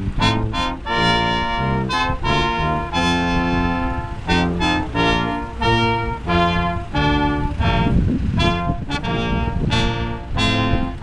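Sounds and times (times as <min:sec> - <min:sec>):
brass band playing a slow tune: 0:00.0 - 0:11.0
low rumble: 0:00.0 - 0:11.0.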